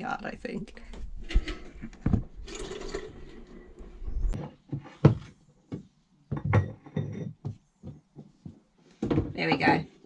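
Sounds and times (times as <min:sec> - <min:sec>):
pipe rustling: 0:00.9 - 0:05.4.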